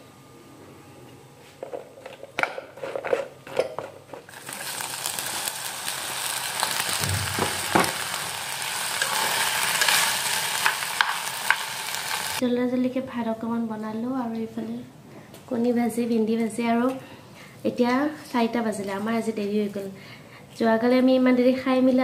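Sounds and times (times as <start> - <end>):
food sizzling in oil: 4.3 - 12.4
okra knocking into pan: 6.7 - 8.4.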